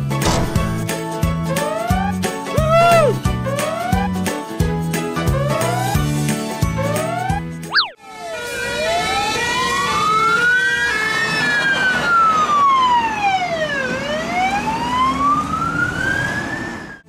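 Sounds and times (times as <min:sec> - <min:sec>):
children's music: 0:00.8 - 0:07.9
fire engine siren wailing: 0:06.8 - 0:17.0.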